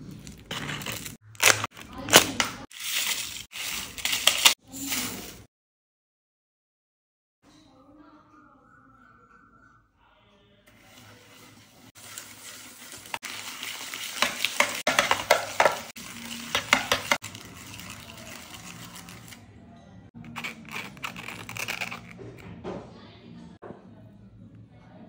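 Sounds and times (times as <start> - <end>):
metal utensils scraping metal tray: 0.2 - 5.5, 10.7 - 19.4, 20.2 - 22.4.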